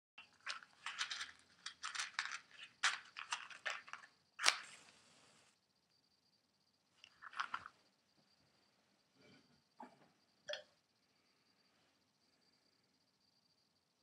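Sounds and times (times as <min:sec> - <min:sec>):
match scraping: 0:02.5 - 0:05.5
match striking and flaring: 0:04.4 - 0:05.0.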